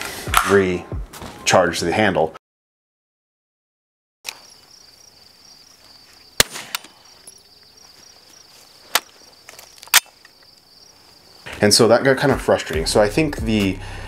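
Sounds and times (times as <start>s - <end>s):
insects chirring: 4.2s - 12.6s
gunshots: 6.4s - 6.9s.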